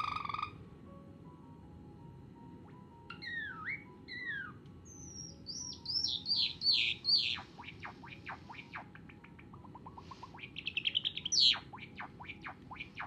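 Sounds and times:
sparrow singing: 3.1s - 13.0s.

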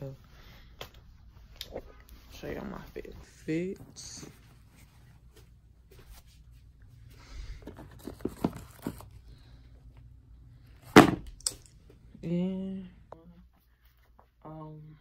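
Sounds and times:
loud thump: 10.9s - 11.3s.

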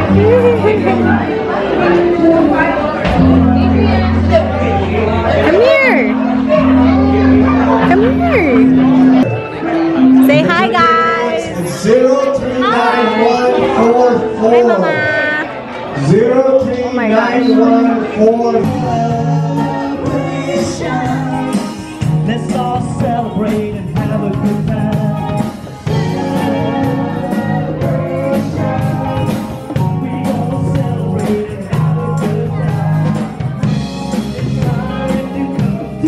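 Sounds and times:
person singing: 0.0s - 8.9s, 10.0s - 36.0s
live band playing upbeat song: 0.0s - 15.5s, 16.6s - 36.0s
guitar: 0.0s - 36.0s
drum kit: 3.0s - 9.4s, 18.5s - 36.0s.

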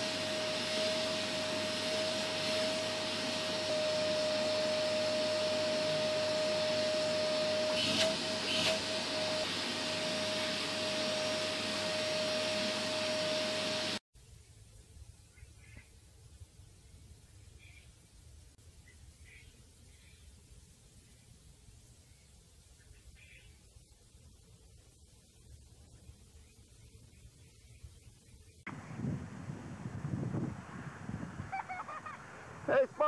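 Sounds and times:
vacuum cleaner whining: 0.0s - 14.0s.

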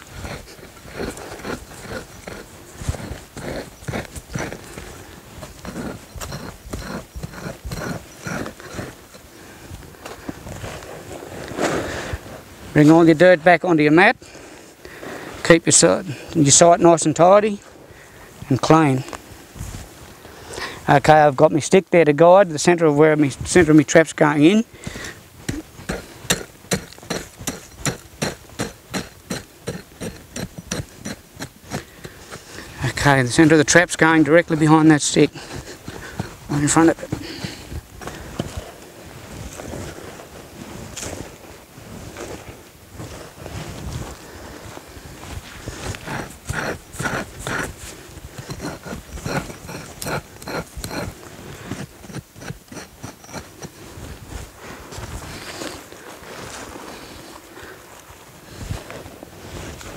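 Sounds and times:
digging tool chopping dry dirt: 0.0s - 9.3s, 23.5s - 38.6s, 45.9s - 54.5s.

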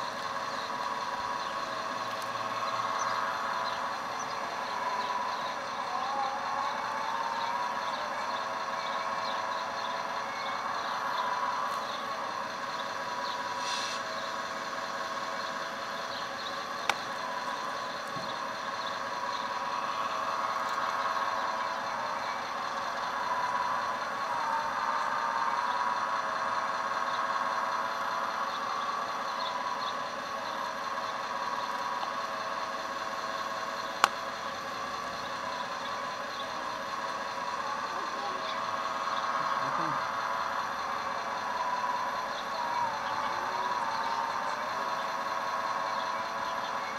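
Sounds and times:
sharp clicks: 16.8s - 17.2s, 33.9s - 34.4s.

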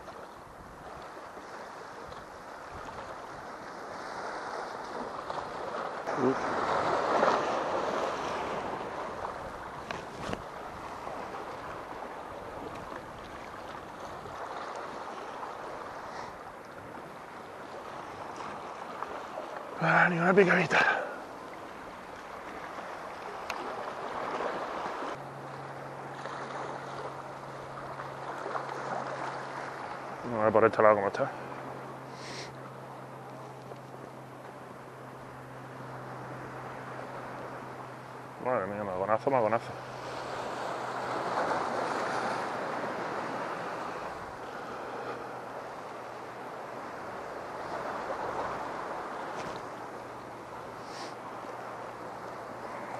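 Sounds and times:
sea washing against rocks: 1.0s - 25.2s
low steady hum: 25.0s - 52.9s.

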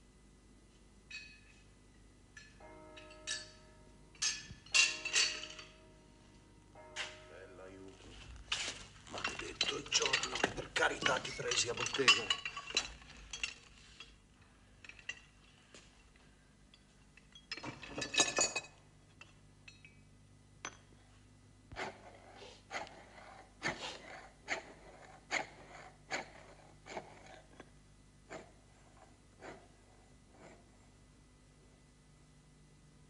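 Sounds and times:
hand tools clattering on workbench: 4.2s - 5.8s, 8.5s - 14.2s, 17.2s - 19.9s.

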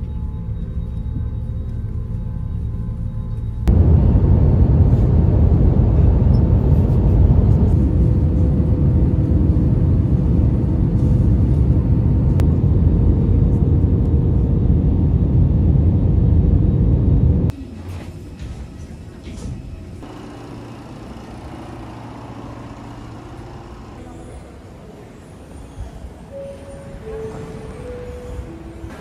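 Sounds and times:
aircraft cabin engine rumble: 3.5s - 20.1s.

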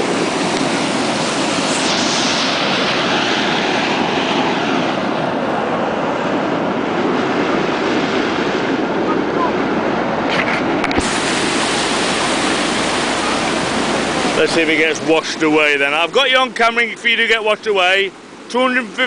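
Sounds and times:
floodwater rushing: 0.0s - 19.0s.

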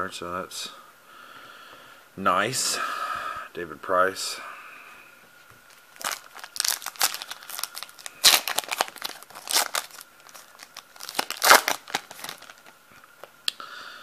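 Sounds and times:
foil wrapper crinkling and tearing: 5.7s - 12.8s.

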